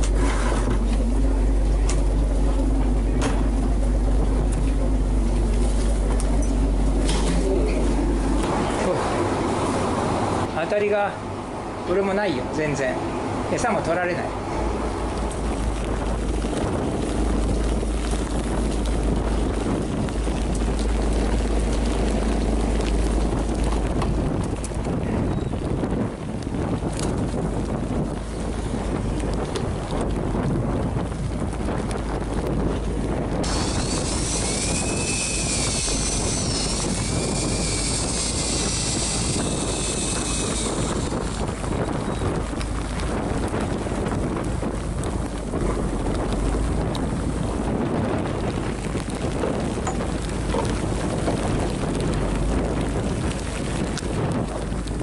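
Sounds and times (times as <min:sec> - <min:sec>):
motor whine wavering in pitch: 0:00.0 - 0:08.5, 0:33.4 - 0:42.6
low rumble: 0:00.0 - 0:11.8, 0:14.2 - 0:55.0
wind blowing over microphone: 0:00.0 - 0:55.0
rain ticking: 0:00.8 - 0:08.5, 0:14.8 - 0:55.0.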